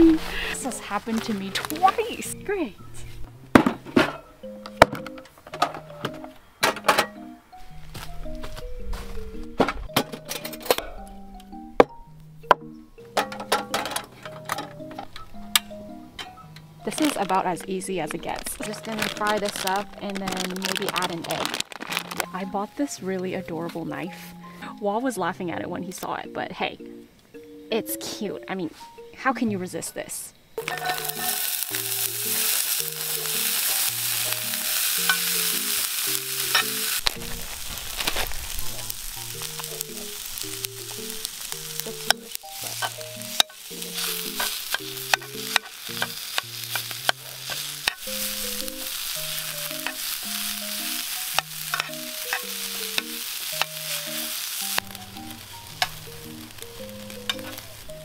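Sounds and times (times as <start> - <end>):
rice sizzling in a pan: 0.0 - 2.4, 16.9 - 22.6, 30.6 - 58.0
soft background music: 0.0 - 58.0.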